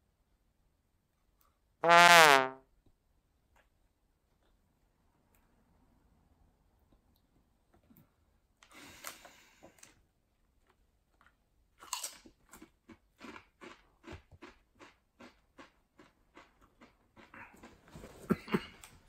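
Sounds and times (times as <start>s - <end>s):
person crunching chip: 11.2s - 17.5s
person chewing crunchily: 11.2s - 17.8s.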